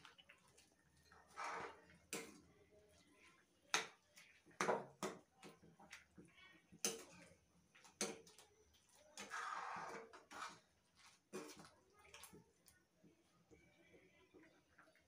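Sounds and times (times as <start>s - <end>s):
metal spoon scraping a pan: 1.0s - 2.4s, 9.1s - 11.7s.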